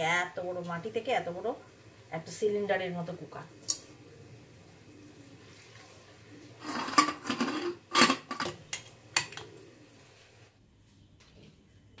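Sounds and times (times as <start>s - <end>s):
pot lid clattering and scraping: 6.6s - 9.4s.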